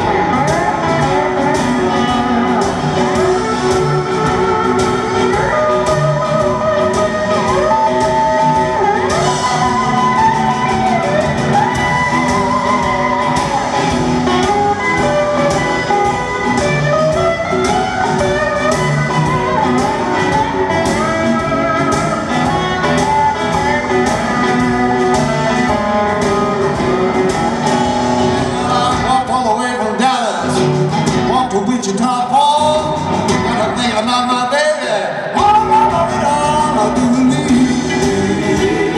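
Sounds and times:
steel guitar sliding: 0.0 - 28.9
drum beat: 0.0 - 29.4, 35.4 - 38.9
bass guitar: 0.0 - 38.9.

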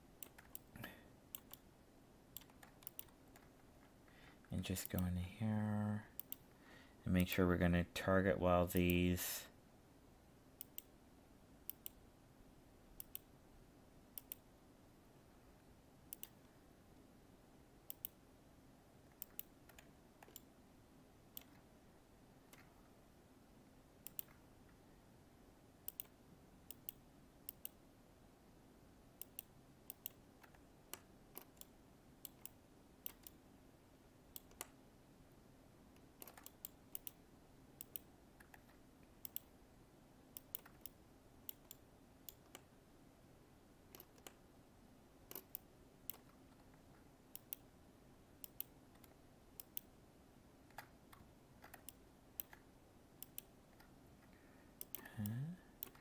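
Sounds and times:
faint steady hum: 0.0 - 56.0
computer mouse clicking: 0.2 - 1.7, 2.3 - 4.0, 4.8 - 5.1, 6.2 - 6.5, 10.6 - 11.0, 11.7 - 12.0, 13.0 - 13.3, 14.2 - 14.5, 16.1 - 16.6, 17.9 - 18.2, 19.1 - 20.5, 21.3 - 21.6, 24.0 - 24.4, 25.8 - 27.8, 29.2 - 33.4, 34.3 - 34.8, 36.0 - 37.2, 37.8 - 39.6, 40.3 - 42.7, 43.9 - 44.4, 45.3 - 47.7, 48.4 - 49.9, 50.6 - 56.0.

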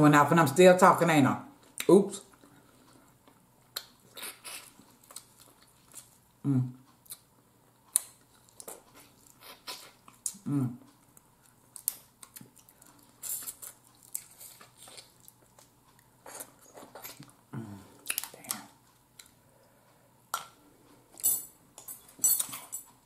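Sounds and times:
wet chewing: 11.0 - 17.4.

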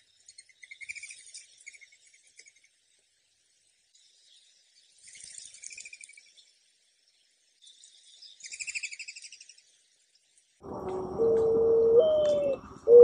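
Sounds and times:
bird chirping trills: 0.0 - 2.8, 3.9 - 9.8, 10.6 - 13.0
dove cooing: 10.8 - 13.0.

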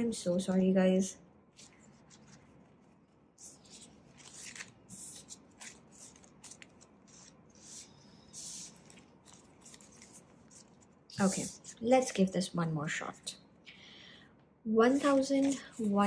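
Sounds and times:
banknotes crinkling and rustling: 1.5 - 12.3, 14.8 - 16.0.

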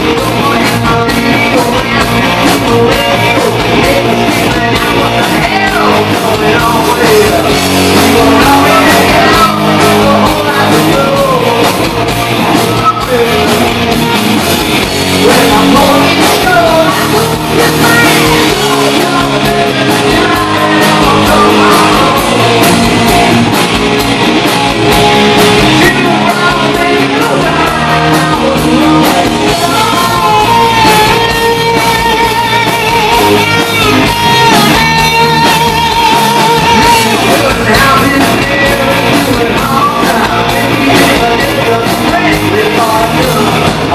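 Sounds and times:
male lead vocal: 0.0 - 23.6, 25.0 - 43.9
bass guitar: 0.0 - 43.9
distorted electric guitars: 0.0 - 43.9
drums: 0.0 - 43.9.

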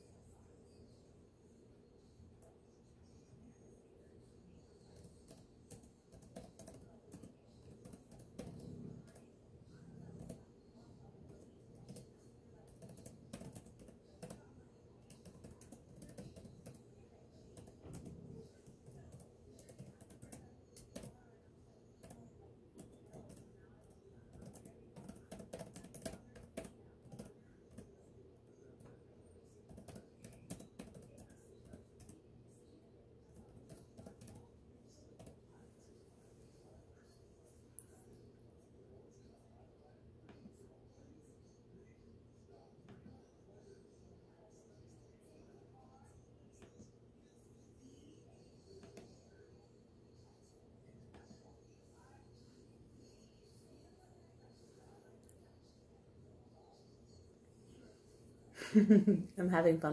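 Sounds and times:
typing on computer keyboard: 4.9 - 10.4, 11.3 - 16.8, 17.5 - 21.3, 22.0 - 27.9, 29.6 - 32.2, 33.3 - 34.5, 35.1 - 35.4.

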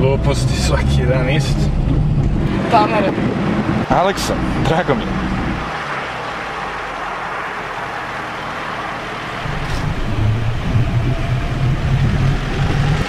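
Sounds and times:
car engine drone: 0.0 - 13.0
road noise inside a moving car: 0.0 - 13.0.

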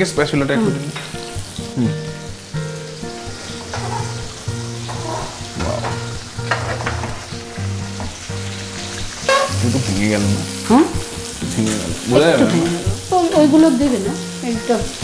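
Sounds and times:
chicken sizzling in hot oil: 0.0 - 15.0
soft background music: 0.0 - 15.0
spatula scraping pan: 3.3 - 7.4.

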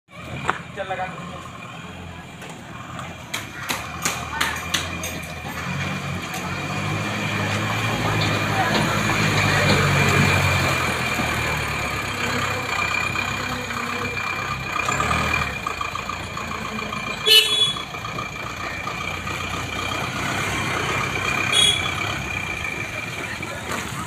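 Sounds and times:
diesel truck engine idling: 0.1 - 24.0
vehicle horn toot: 17.2 - 17.9, 21.5 - 22.1.

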